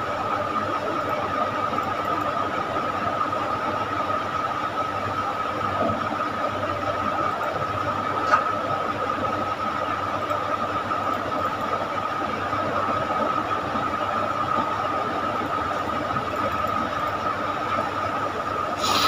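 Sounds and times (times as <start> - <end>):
hiss and rumble: 17.6 - 19.0.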